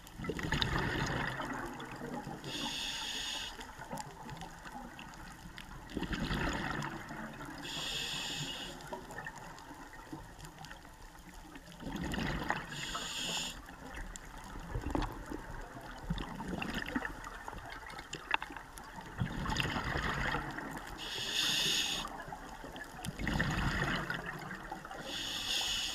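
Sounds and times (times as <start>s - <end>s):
exhaled bubbles gurgling: 0.0s - 25.9s
regulator air hiss: 2.5s - 3.7s, 7.6s - 8.9s, 12.7s - 13.7s, 21.0s - 22.2s, 25.0s - 25.9s.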